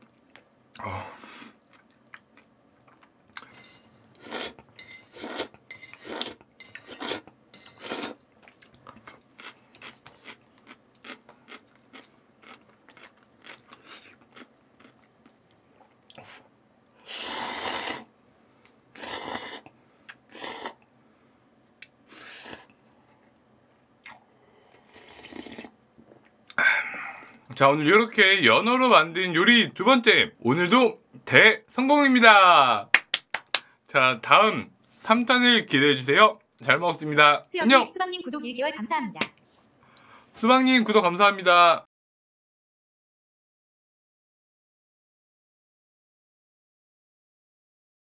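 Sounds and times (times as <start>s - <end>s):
person sipping broth: 0.7s - 16.4s, 17.0s - 18.1s, 18.7s - 20.8s, 22.1s - 23.4s, 24.0s - 27.5s
person chewing and slurping noodles: 1.5s - 16.4s, 17.0s - 20.8s, 22.1s - 23.4s, 24.0s - 26.4s.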